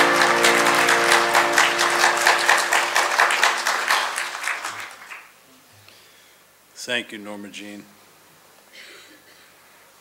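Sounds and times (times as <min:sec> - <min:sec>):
held music chord: 0:00.0 - 0:03.3
congregation applauding: 0:00.0 - 0:05.4.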